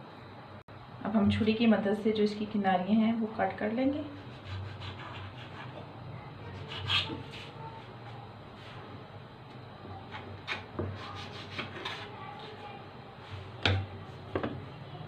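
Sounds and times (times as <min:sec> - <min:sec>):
knife scraping dough: 0:04.0 - 0:05.9, 0:06.5 - 0:08.8, 0:10.0 - 0:14.3.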